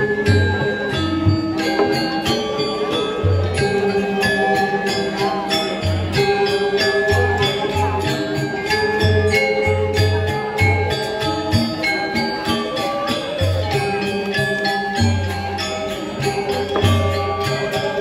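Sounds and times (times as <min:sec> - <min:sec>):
metallophones ringing melody: 0:00.0 - 0:18.0.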